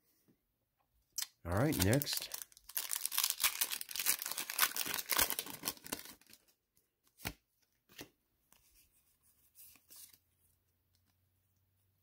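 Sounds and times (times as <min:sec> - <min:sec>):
foil wrapper crinkling and tearing: 0:01.5 - 0:06.4.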